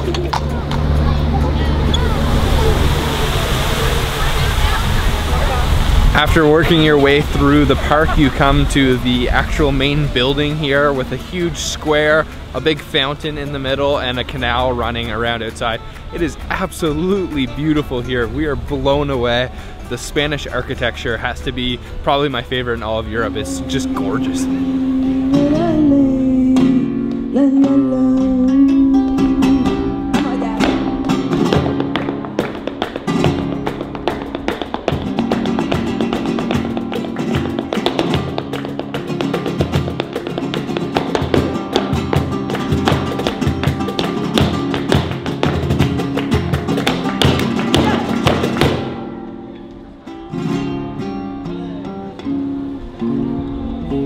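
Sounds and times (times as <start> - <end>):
flamenco dance footwork taps: 0.0 - 0.9, 29.0 - 49.8
acoustic guitar playing: 0.0 - 54.0
wavering singing voice: 23.0 - 30.8.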